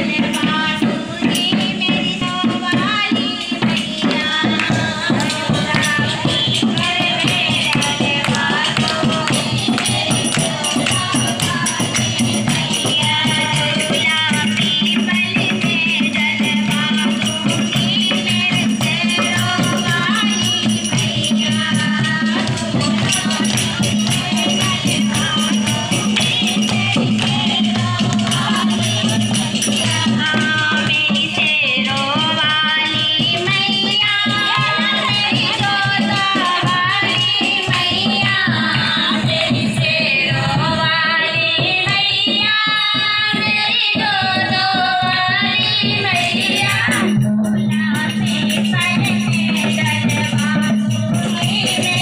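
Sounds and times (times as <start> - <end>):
group of women singing: 0.0 - 52.0
hand drum beat: 0.0 - 52.0
rattling percussion: 0.0 - 52.0
hand clapping: 6.7 - 12.6.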